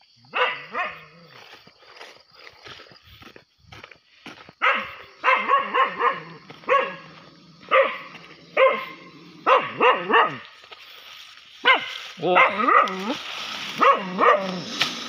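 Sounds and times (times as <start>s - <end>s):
dog barking: 0.3s - 1.4s, 4.6s - 10.6s, 11.6s - 13.2s, 13.8s - 14.7s.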